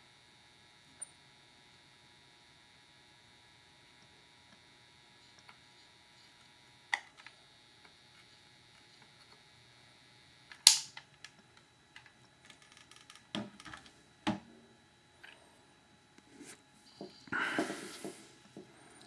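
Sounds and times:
faint electrical hum: 0.0s - 19.0s
sharp crack: 10.7s - 11.0s.

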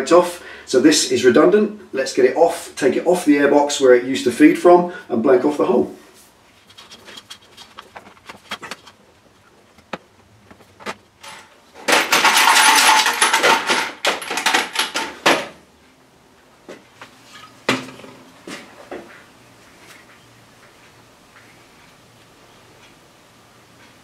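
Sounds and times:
handling clicks and knocks: 6.6s - 15.6s
small metal parts rattling: 6.6s - 15.6s.

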